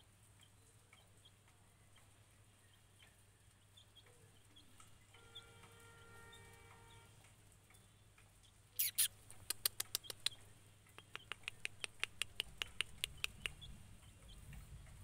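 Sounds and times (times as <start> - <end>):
chick peeping: 8.8 - 15.0.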